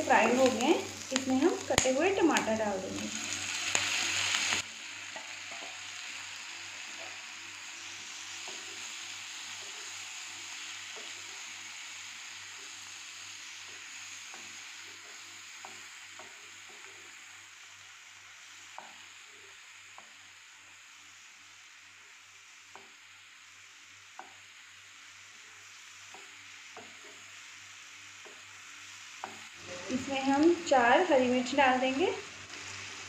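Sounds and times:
vegetables sizzling in a frying pan: 0:00.0 - 0:33.0
spatula tapping a pan: 0:14.3 - 0:16.9, 0:22.7 - 0:23.0, 0:24.1 - 0:24.4, 0:26.0 - 0:27.3, 0:29.2 - 0:29.5.

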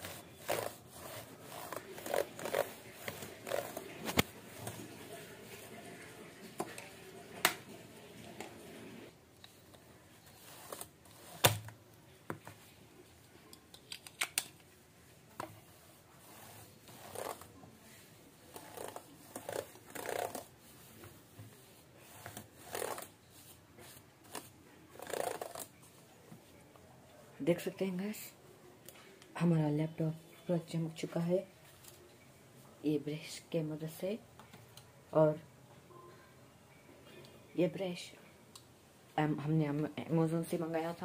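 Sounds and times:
brush scrubbing keyboard: 0:00.0 - 0:07.0, 0:10.2 - 0:11.6, 0:15.6 - 0:25.7.

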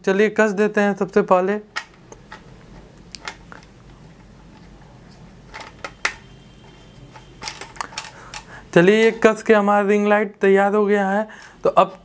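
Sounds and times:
plastic parts clicking: 0:01.7 - 0:09.4.

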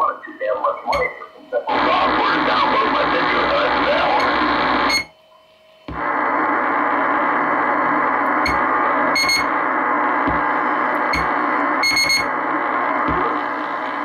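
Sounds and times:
radio static hiss: 0:00.0 - 0:05.1, 0:05.9 - 0:14.0.

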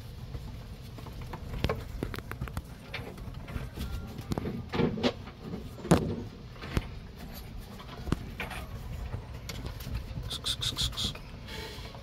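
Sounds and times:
short high squeaks: 0:10.3 - 0:11.7.

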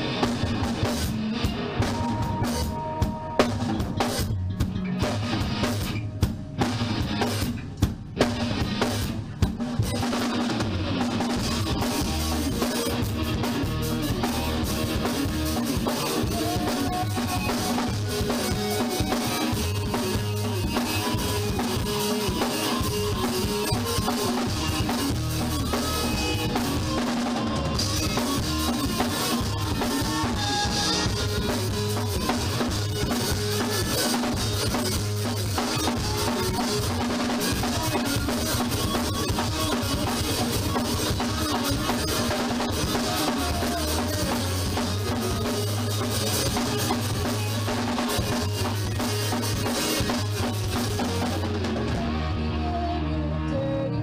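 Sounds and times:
drum kit kick snare and rimshots: 0:00.0 - 0:52.5
band playing a song: 0:00.0 - 0:54.0.

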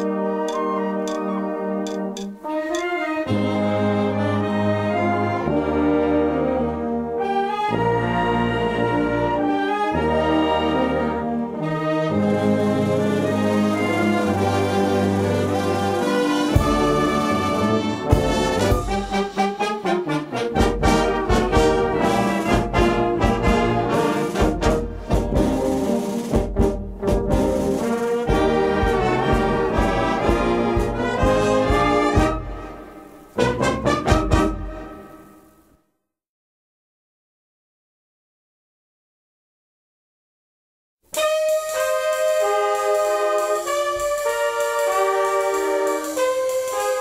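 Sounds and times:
percussion hits: 0:00.0 - 0:03.0, 0:41.2 - 0:47.0
wind band playing: 0:00.0 - 0:35.5, 0:41.1 - 0:47.0.

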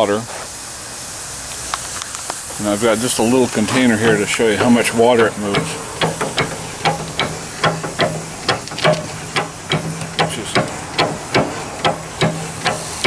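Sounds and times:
hand pump clacking: 0:03.5 - 0:13.0.

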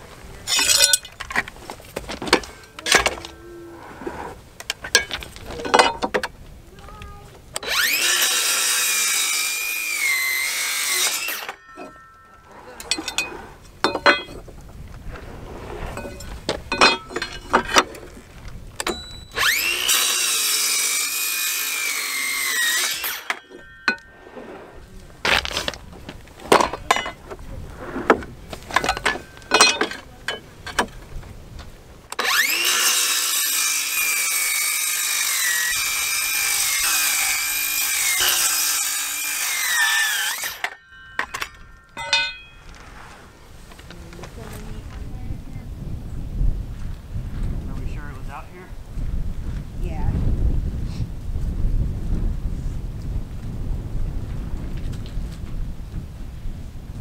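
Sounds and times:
circular saw cutting wood: 0:07.6 - 0:13.4, 0:19.3 - 0:25.6, 0:32.1 - 0:42.3.

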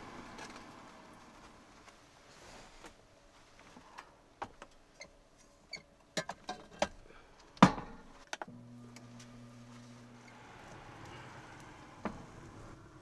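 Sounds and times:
air fryer humming: 0:08.5 - 0:13.0.

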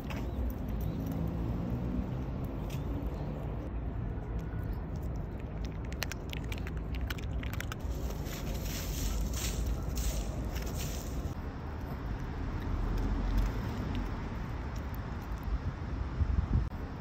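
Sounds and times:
low outdoor rumble: 0:00.0 - 0:17.0
dog paws scratching dry leaves: 0:07.6 - 0:11.4.

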